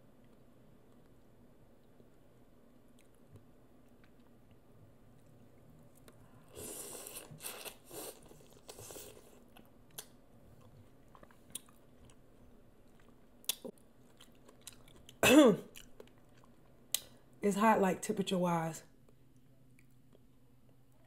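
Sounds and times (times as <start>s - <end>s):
wet chewing and smacking: 7.0s - 17.1s.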